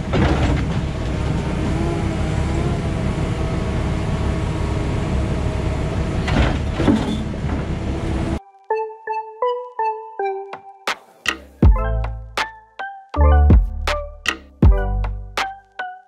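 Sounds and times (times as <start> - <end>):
excavator engine and hydraulics: 0.0 - 8.4.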